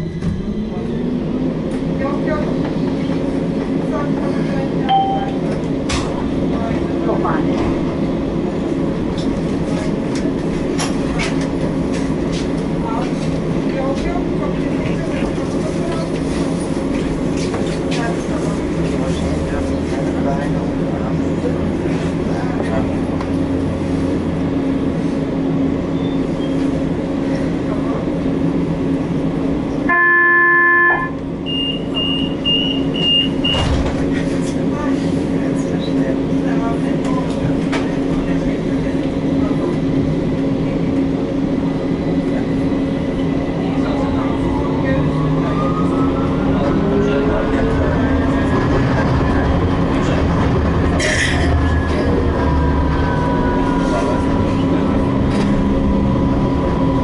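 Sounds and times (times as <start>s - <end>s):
tram humming: 0.0s - 57.0s
tram horn: 29.8s - 31.3s.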